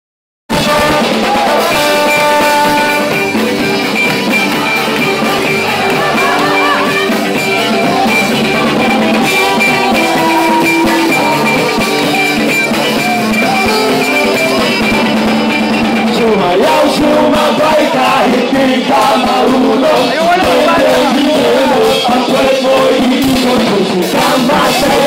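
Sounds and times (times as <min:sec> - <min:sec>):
trombones holding notes: 0:00.5 - 0:12.0
rock band playing: 0:00.5 - 0:25.0.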